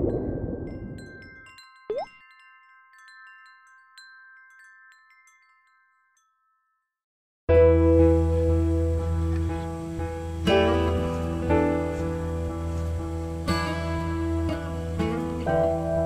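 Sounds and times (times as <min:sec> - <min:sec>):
wind chimes ringing: 0:00.0 - 0:07.0
water drop plop: 0:01.9 - 0:02.1
acoustic guitar music: 0:07.5 - 0:16.0.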